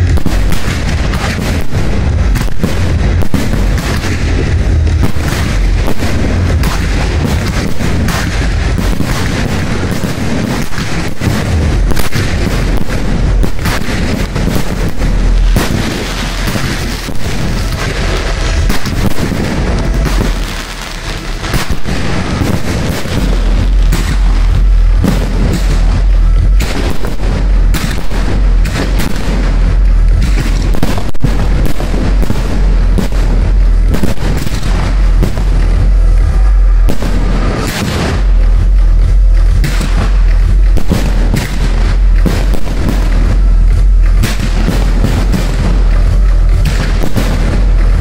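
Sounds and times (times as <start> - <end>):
deep rumble: 0.0 - 48.0
fireworks booming: 0.0 - 48.0.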